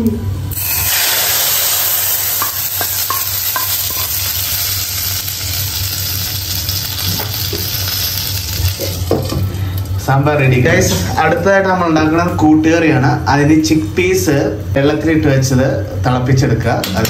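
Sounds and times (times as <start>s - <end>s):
oil sizzling: 0.5s - 10.1s.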